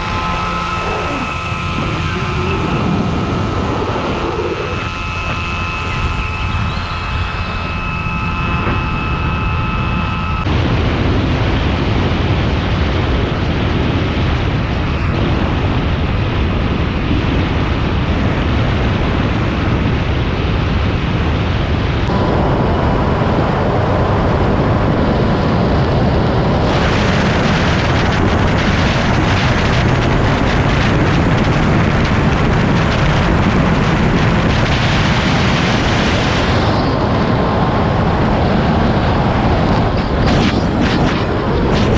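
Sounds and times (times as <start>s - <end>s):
electric motor whine: 0.0s - 10.6s
wind buffeting microphone: 0.0s - 41.9s.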